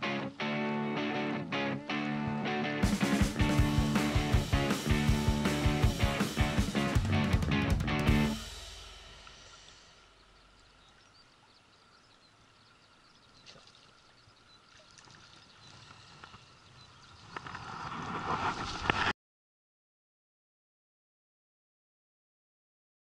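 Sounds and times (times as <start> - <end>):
stream running water: 8.5 - 17.6.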